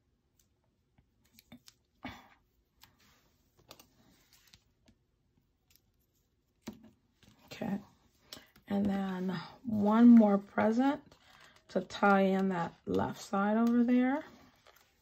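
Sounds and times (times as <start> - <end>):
paper rustling: 14.2 - 15.0.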